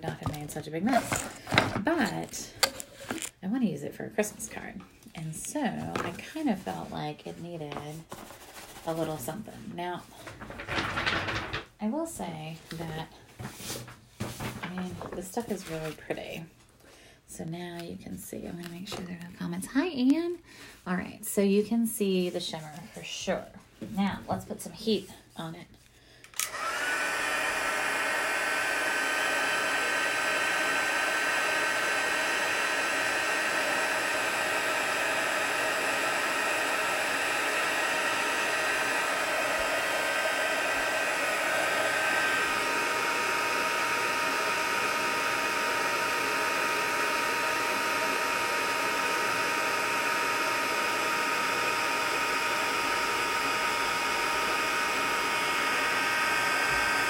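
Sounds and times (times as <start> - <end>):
heat tool fan whirring: 0.0 - 4.4, 26.2 - 57.0.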